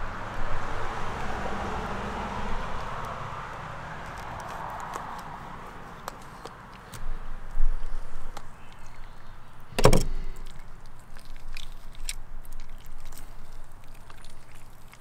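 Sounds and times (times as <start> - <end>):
heavy thump: 9.8 - 10.2.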